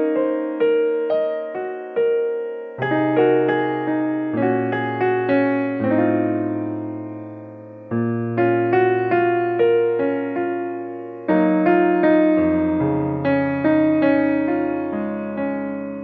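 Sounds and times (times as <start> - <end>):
electric piano tune: 0.0 - 16.0.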